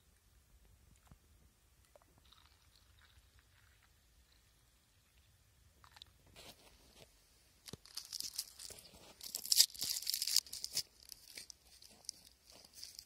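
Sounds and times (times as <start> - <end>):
sweet wrappers crinkling: 7.7 - 13.0.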